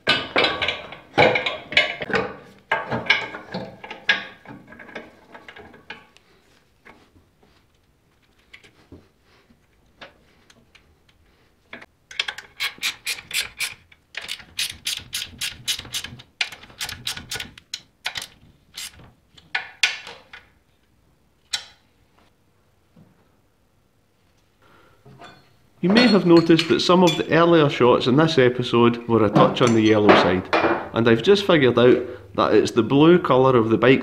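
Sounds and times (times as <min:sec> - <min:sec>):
socket ratchet clicking: 0:12.3 - 0:19.0.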